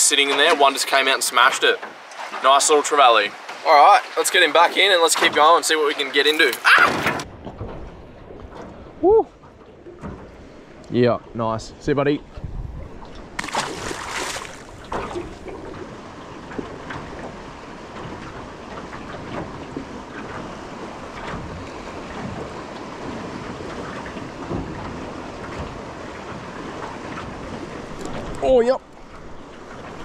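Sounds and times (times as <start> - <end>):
sea water wash: 0.0 - 30.0
wind on microphone: 11.2 - 30.0
fish splashing into sea: 13.2 - 16.0.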